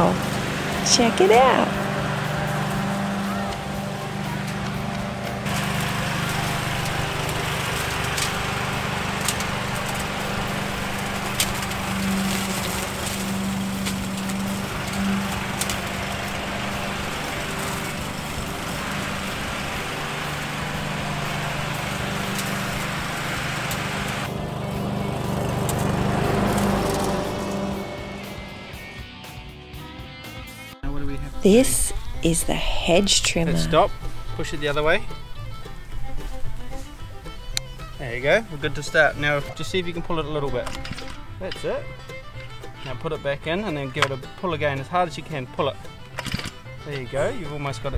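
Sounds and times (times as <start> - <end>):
lawn mower running: 0.0 - 29.6, 31.4 - 47.9.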